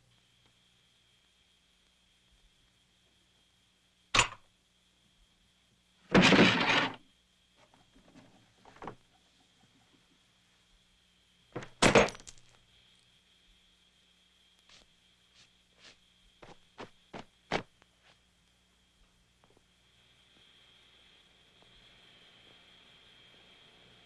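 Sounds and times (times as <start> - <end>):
sharp knocks and crashes: 6.1 - 7.0.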